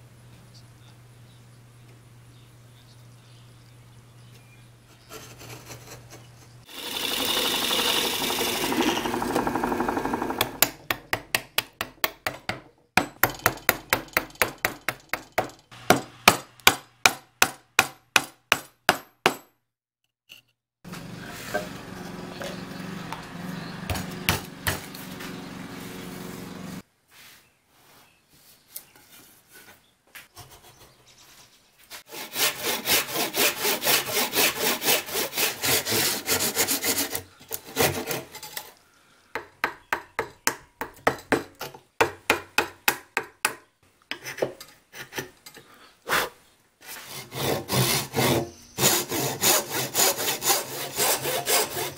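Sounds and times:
hand saw cutting wood: 0:05.0 - 0:12.6, 0:23.3 - 0:26.6, 0:31.9 - 0:38.8, 0:44.1 - 0:45.4, 0:46.1 - 0:51.9
loud rasping cutting: 0:05.1 - 0:12.3, 0:21.0 - 0:26.8, 0:32.0 - 0:38.6, 0:46.9 - 0:51.9
steady cutting noise: 0:06.6 - 0:12.0, 0:20.9 - 0:26.8, 0:32.1 - 0:37.1, 0:47.1 - 0:51.9.

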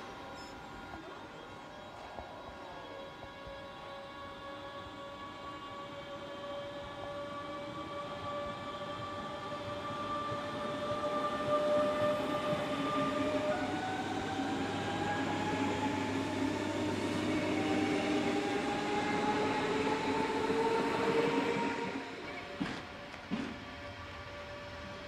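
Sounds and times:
train rumble: 0:00.0 - 0:25.0
traction motor whine rising: 0:04.5 - 0:22.8.

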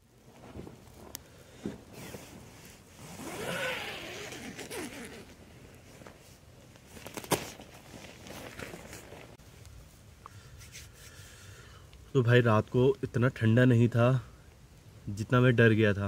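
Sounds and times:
rasping zipper: 0:03.0 - 0:05.4.

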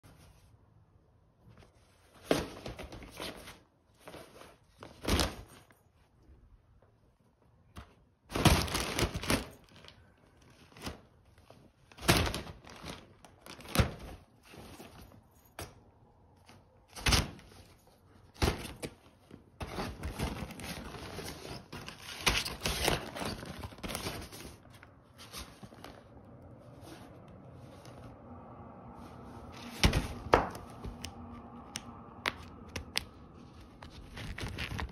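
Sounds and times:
nylon tunnel rustling and crackling: 0:08.3 - 0:15.2, 0:16.9 - 0:28.2, 0:33.4 - 0:34.9.

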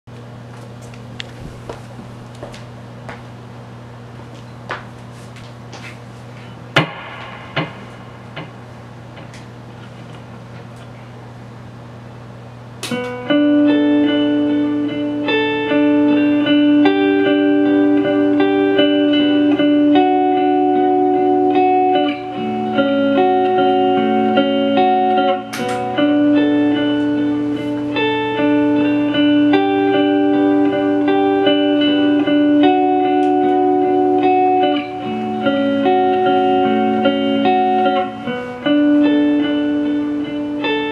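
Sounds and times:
amplifier hum: 0:00.1 - 0:40.9
electric guitar picking notes: 0:05.8 - 0:40.9
sharp click: 0:12.8 - 0:13.2.

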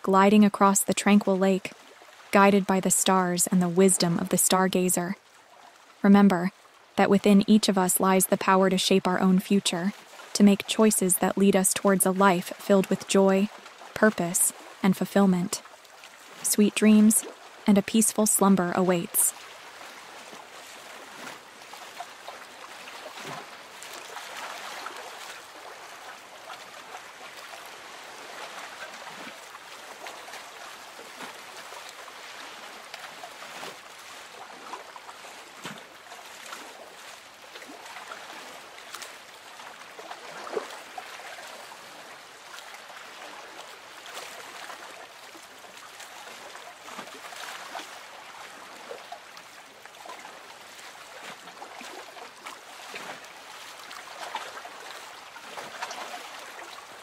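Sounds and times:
water lapping against boat hull: 0:00.0 - 0:57.0
small splashes: 0:19.2 - 0:57.0.

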